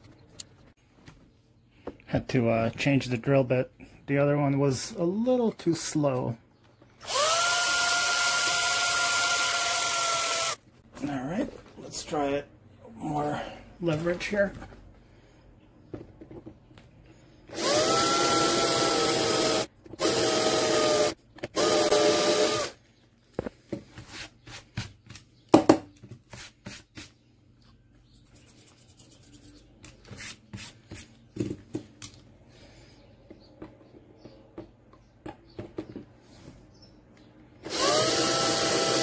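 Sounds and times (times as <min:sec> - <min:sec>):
cordless drill whining: 0:07.0 - 0:10.6, 0:17.5 - 0:22.8, 0:37.6 - 0:39.0.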